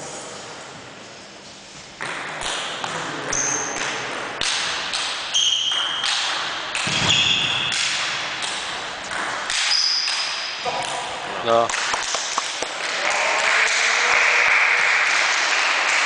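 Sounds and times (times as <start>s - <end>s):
shoes squeaking on wooden floor: 6.9s - 7.7s.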